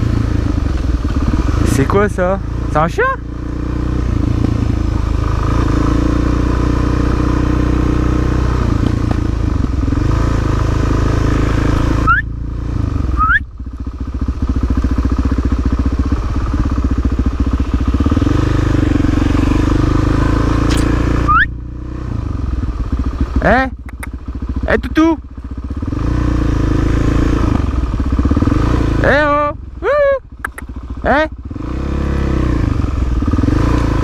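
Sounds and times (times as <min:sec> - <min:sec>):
motorcycle engine running: 0:00.0 - 0:34.0
short rising squeaks: 0:13.2 - 0:13.4, 0:20.6 - 0:21.6.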